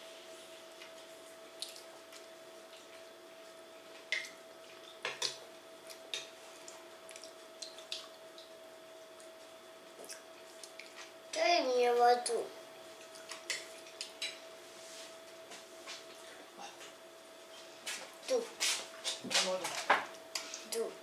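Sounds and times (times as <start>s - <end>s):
faint steady hum: 0.0s - 21.0s
child chewing: 9.9s - 11.2s.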